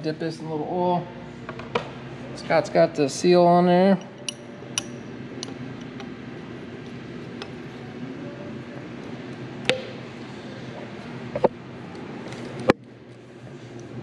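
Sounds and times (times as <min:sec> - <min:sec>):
shop background noise: 0:03.8 - 0:14.0
tools clinking on metal: 0:04.0 - 0:06.0.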